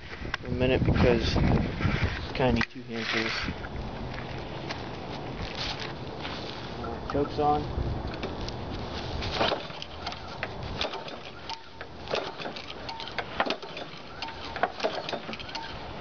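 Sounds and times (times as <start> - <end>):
recoil starter rattling pulls: 9.3 - 15.8.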